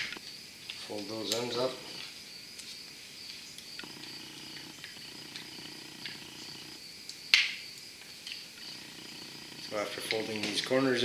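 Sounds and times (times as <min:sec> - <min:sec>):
faint high whine: 0:03.8 - 0:06.9, 0:08.4 - 0:11.0
sharp crackling click: 0:09.6 - 0:10.7.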